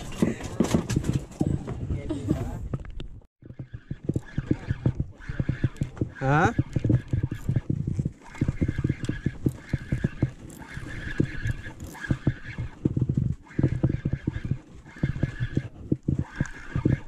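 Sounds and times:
spinning reel gears whirring: 0:03.5 - 0:17.0.

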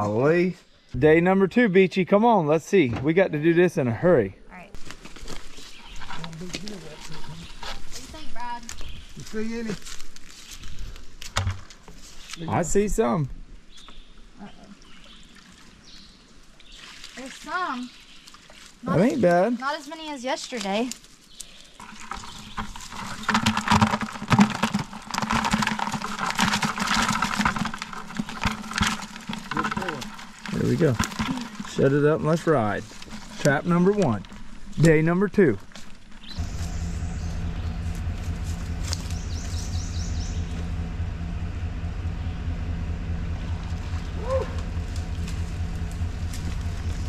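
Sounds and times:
crawfish clattering in plastic bucket: 0:21.8 - 0:35.0
engine idling: 0:36.2 - 0:47.0
short rising and falling call: 0:36.3 - 0:47.0.

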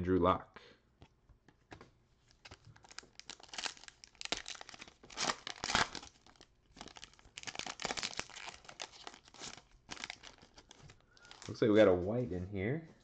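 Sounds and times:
foil wrapper crinkling and tearing: 0:02.3 - 0:11.6.

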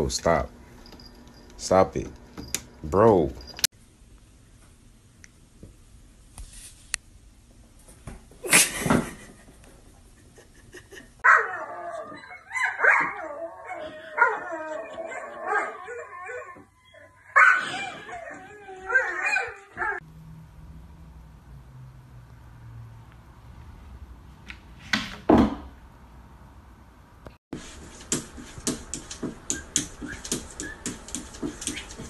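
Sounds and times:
dog whining and yowling: 0:11.2 - 0:20.0.

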